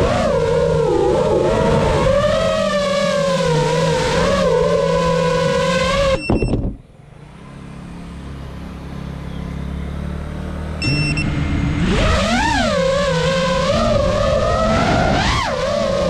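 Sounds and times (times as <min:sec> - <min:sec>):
short high beeps: 0:10.8 - 0:11.3
low hum: 0:10.8 - 0:11.9
quadcopter motors whining: 0:10.8 - 0:15.6.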